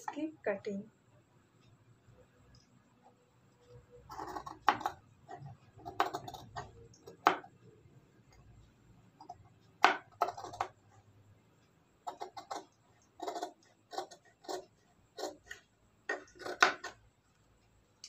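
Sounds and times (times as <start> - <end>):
scissors snipping fabric: 12.1 - 17.0.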